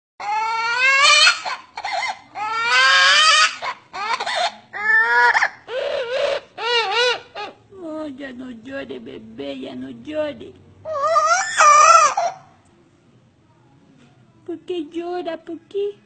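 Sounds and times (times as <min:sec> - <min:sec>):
parrot mimicking child crying: 0:00.2 - 0:07.6, 0:10.9 - 0:12.6.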